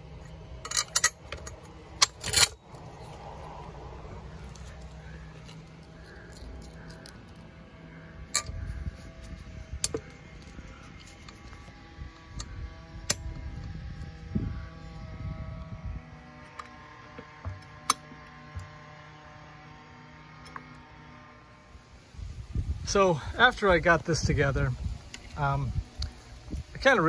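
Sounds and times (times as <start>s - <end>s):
metal hardware clinking: 0.2s - 3.2s, 4.5s - 7.5s, 8.2s - 11.6s.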